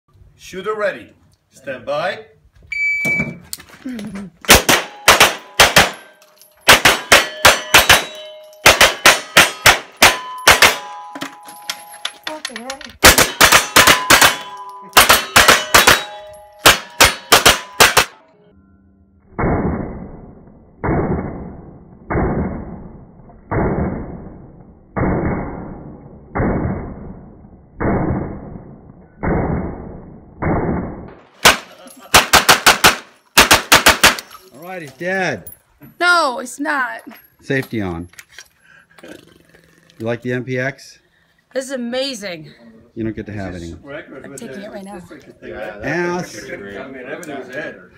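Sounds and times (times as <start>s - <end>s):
rapid handgun gunshots: 4.5s - 6.0s, 6.7s - 10.8s, 13.0s - 14.4s, 15.0s - 18.2s, 30.4s - 34.2s
steel targets ringing: 4.8s - 12.3s, 13.1s - 18.4s
slowed-down muffled gunshots: 19.3s - 31.6s.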